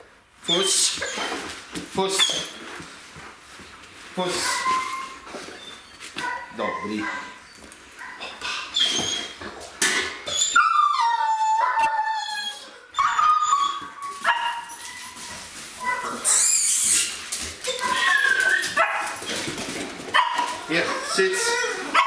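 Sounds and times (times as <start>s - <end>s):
dog whining: 0.4s - 1.5s, 2.2s - 2.6s, 4.3s - 9.6s, 10.2s - 19.5s, 20.2s - 22.0s
dog yipping: 4.4s - 9.4s, 10.2s - 19.5s, 20.1s - 22.0s.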